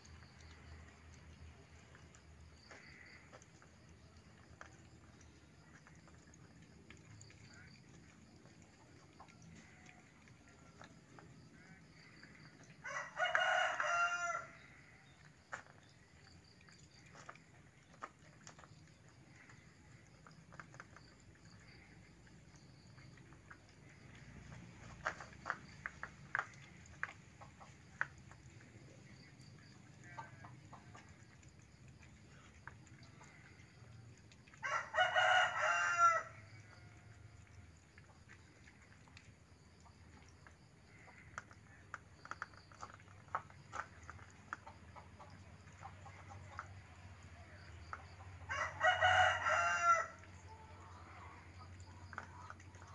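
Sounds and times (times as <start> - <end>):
cats eating from plastic bowls: 0.0 - 52.9
rooster crowing: 12.8 - 14.6, 34.6 - 36.6, 48.5 - 50.2.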